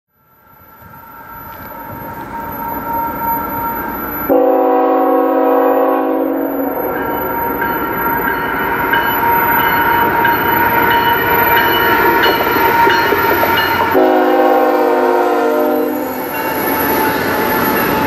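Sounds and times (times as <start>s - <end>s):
train rumble: 0.3s - 18.0s
train air horn chord: 4.3s - 6.9s, 13.9s - 16.2s.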